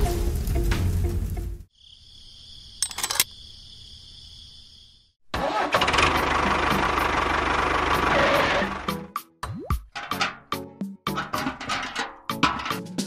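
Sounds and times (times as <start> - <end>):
music: 0.0 - 1.7, 5.5 - 13.0.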